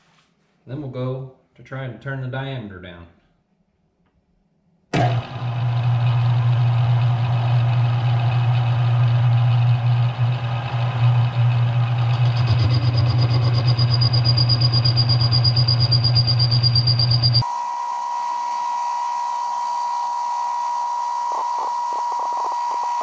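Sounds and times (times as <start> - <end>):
lathe motor humming: 5.0 - 23.0
high steady whine: 7.2 - 23.0.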